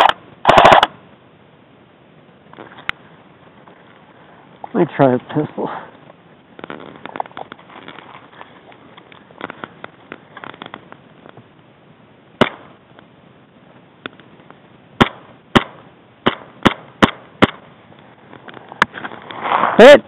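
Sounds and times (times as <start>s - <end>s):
airsoft pistol shots: 0.0s - 1.0s, 12.4s - 12.8s, 15.0s - 17.6s.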